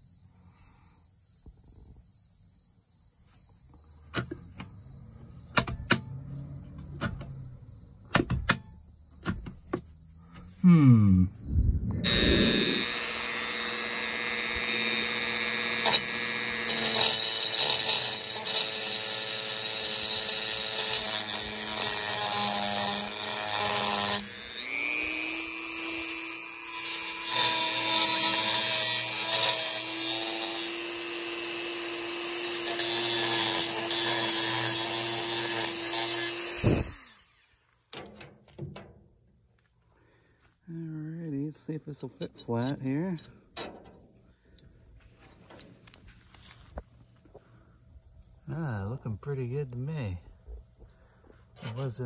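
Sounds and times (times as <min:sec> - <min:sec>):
rotary tool grinding metal: 0:11.9 - 0:37.6, 0:42.2 - 0:43.8.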